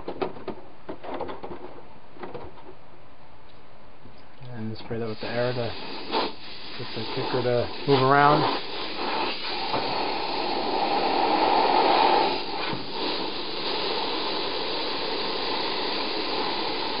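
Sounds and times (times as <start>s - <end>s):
compressed air hissing: 4.9s - 17.0s.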